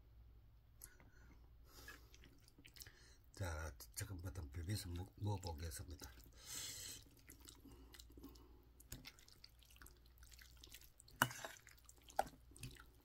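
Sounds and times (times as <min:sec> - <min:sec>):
wet food squishing: 0:01.7 - 0:13.0.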